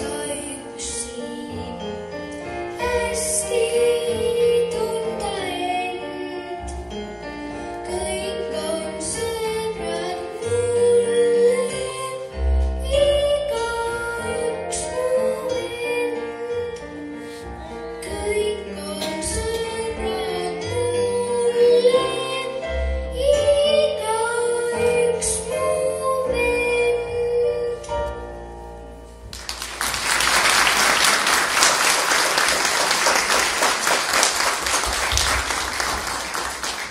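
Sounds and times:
child singing: 0.0 - 1.8, 2.8 - 6.6, 7.8 - 16.8, 18.0 - 27.9
audience applause: 29.3 - 36.9.

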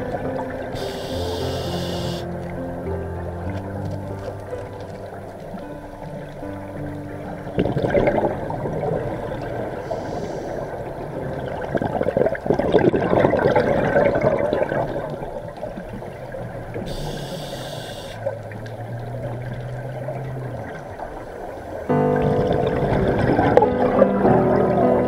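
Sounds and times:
underwater exhaled bubbles gurgling: 0.0 - 25.0
short high regulator hiss: 0.8 - 2.3, 16.9 - 18.2.

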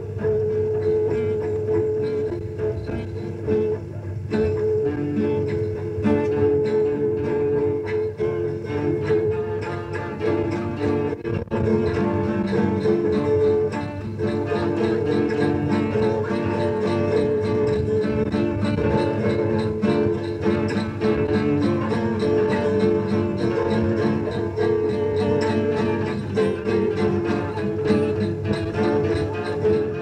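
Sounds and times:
acoustic guitar with other instruments: 0.0 - 30.0.

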